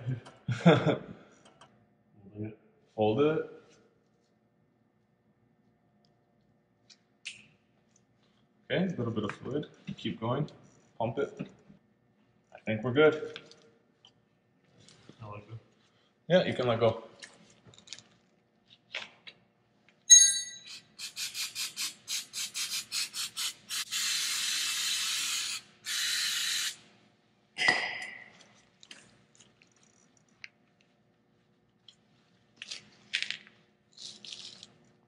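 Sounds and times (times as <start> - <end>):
sharp metallic clink: 20.1 - 20.8
aerosol spray can hissing: 20.7 - 26.8.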